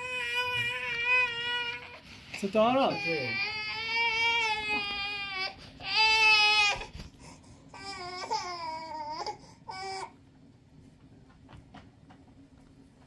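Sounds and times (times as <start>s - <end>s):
toddler crying in high wails: 2.8s - 6.9s, 7.8s - 10.1s.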